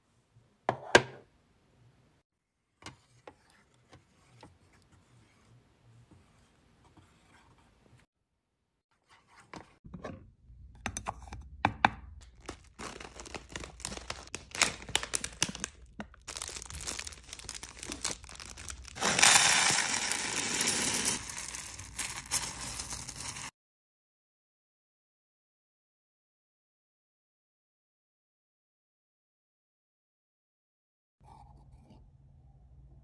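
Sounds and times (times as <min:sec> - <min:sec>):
plastic bag crinkling: 0:12.3 - 0:23.5
beads rattling into metal pot: 0:16.3 - 0:23.5.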